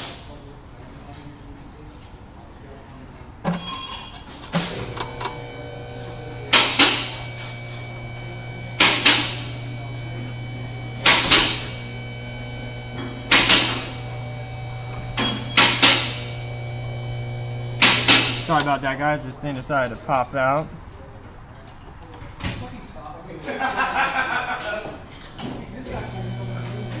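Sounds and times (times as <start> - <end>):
loud mechanical clunk: 4.6 - 18.7
brake lathe humming: 4.7 - 20.8, 25.8 - 27.0.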